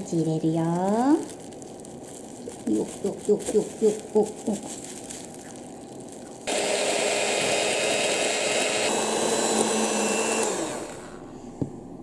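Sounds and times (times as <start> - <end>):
electric hand mixer whipping: 6.5 - 11.3.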